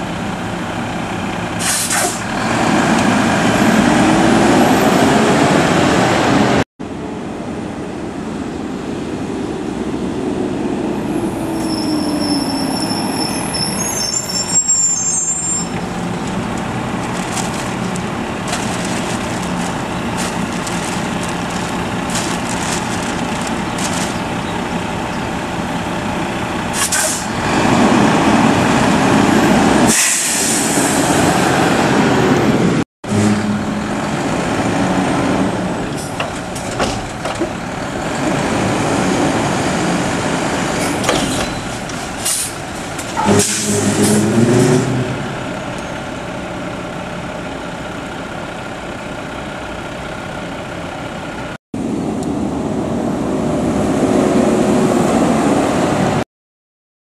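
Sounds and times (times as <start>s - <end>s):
garbage truck diesel engine: 0.0s - 56.2s
air hiss: 29.9s - 31.0s.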